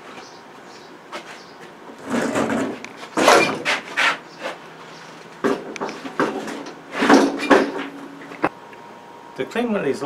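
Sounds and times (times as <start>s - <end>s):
objects knocking and clunking: 2.0s - 3.9s, 5.4s - 8.5s.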